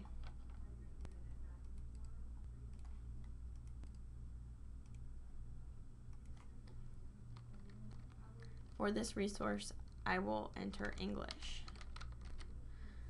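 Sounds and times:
keyboard and mouse clicks: 0:00.0 - 0:04.0, 0:06.1 - 0:08.8, 0:09.8 - 0:12.6
steady low hum: 0:00.0 - 0:13.0.

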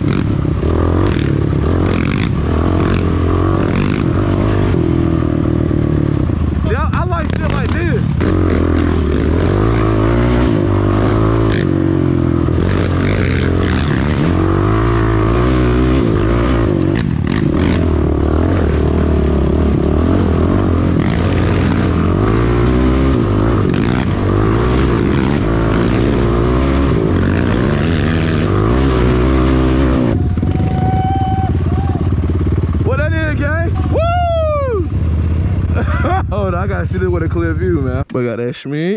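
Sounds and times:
quad engine running under load: 0:00.0 - 0:38.2.

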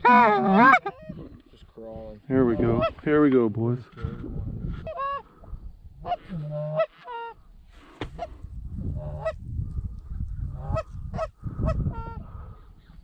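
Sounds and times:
geese honking: 0:00.0 - 0:01.1, 0:04.8 - 0:05.3, 0:06.0 - 0:07.4, 0:09.0 - 0:09.4.

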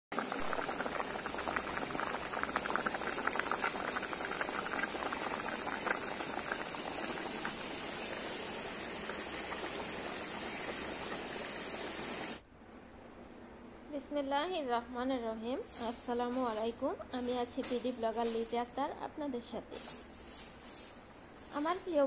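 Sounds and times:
curry bubbling and popping: 0:00.1 - 0:12.4.

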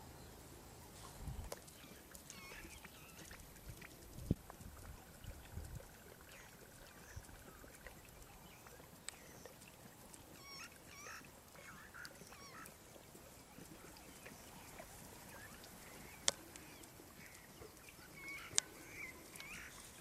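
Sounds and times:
birds warbling calls: 0:01.7 - 0:03.4, 0:10.3 - 0:20.0.

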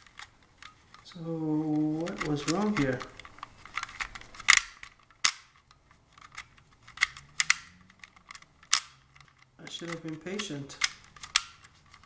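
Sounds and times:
plastic camera shutter clicks: 0:01.8 - 0:12.0.

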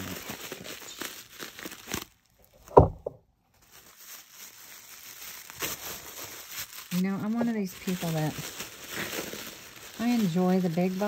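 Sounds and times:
package crinkling and rustling: 0:00.0 - 0:11.0
loud thump: 0:02.7 - 0:03.2.

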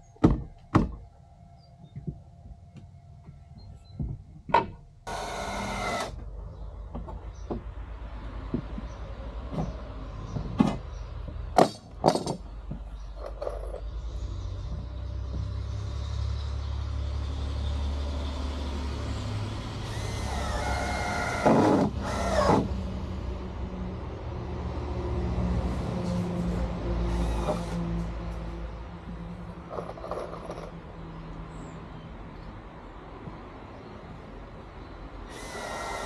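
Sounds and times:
heavy vehicle engine rumbling: 0:05.9 - 0:32.0.

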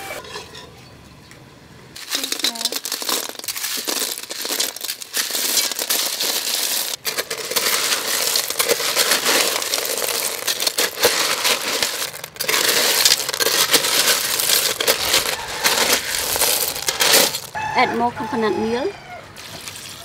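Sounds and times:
shells clattering: 0:02.0 - 0:17.6
crackling sizzle in pot: 0:02.0 - 0:17.7.

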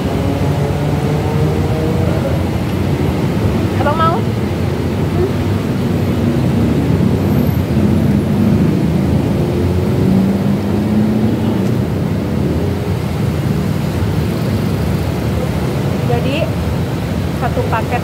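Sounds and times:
low rumble of road traffic: 0:00.0 - 0:18.0.

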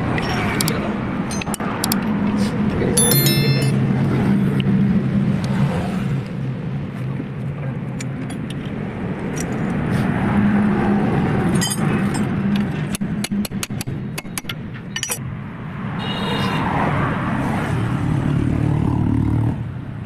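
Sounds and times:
sharp metallic clinks: 0:01.3 - 0:02.0, 0:03.0 - 0:03.9, 0:14.9 - 0:15.2.

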